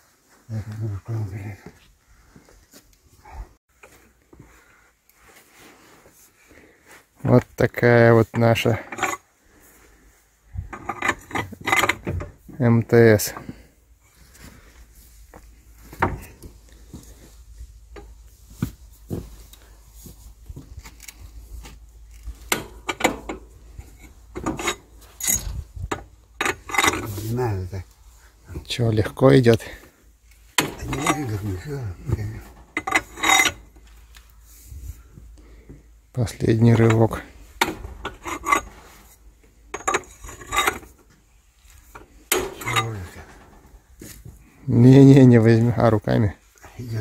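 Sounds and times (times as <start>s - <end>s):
puller clicking and creaking: 10.6s - 12.4s, 22.0s - 27.4s, 30.3s - 34.3s, 36.6s - 44.3s
metal knocks: 30.6s - 31.4s, 41.9s - 43.8s.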